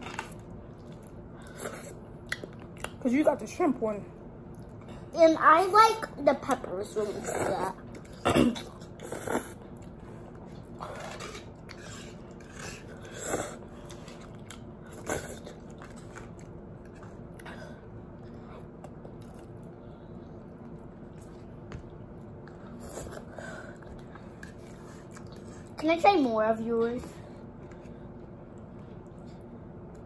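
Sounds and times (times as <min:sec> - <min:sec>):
person chewing food: 0:00.0 - 0:03.0, 0:07.8 - 0:25.8
faint steady hum: 0:00.0 - 0:30.0.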